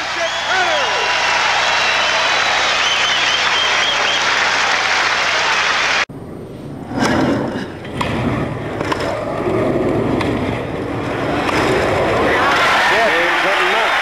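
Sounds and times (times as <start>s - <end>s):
crowd applauding: 0.0s - 6.1s, 12.1s - 14.0s.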